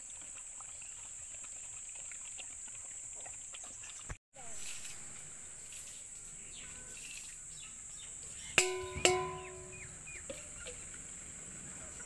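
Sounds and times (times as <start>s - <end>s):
steel bowls clanking: 8.6s - 10.8s.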